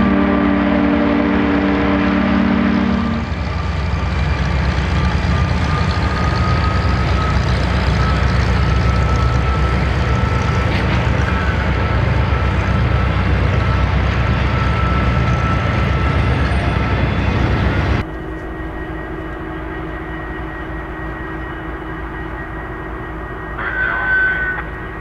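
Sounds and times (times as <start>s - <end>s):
diesel locomotive engine drone: 0.0s - 25.0s
freight train rumbling past: 0.0s - 25.0s
brief higher tone: 23.4s - 24.9s.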